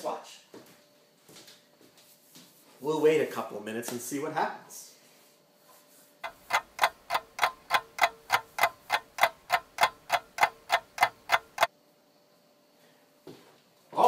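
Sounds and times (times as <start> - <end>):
clock ticking: 6.2 - 11.7.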